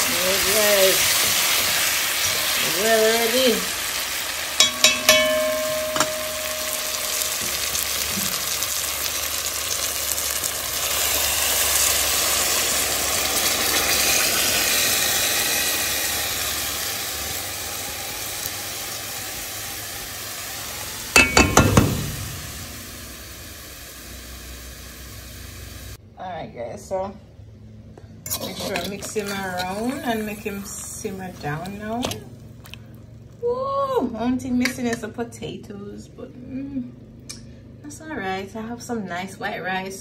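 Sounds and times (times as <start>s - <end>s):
chicken sizzling in a metal pot: 0.0s - 26.0s, 28.3s - 33.2s
short metallic ring: 4.6s - 7.8s
fork scraping a pot: 28.3s - 30.2s.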